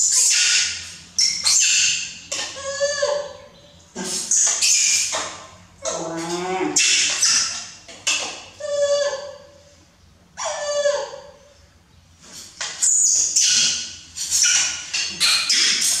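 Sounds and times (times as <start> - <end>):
baby monkeys crying: 1.4 - 3.6.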